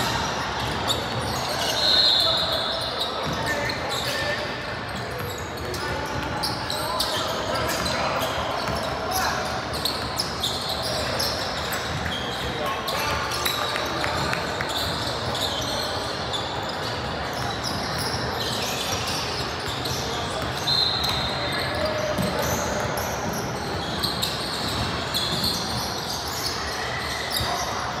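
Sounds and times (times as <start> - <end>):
shoe squeaks: 0.0 - 28.0
voices echoing: 0.0 - 28.0
basketballs bouncing on wood floor: 17.0 - 25.9.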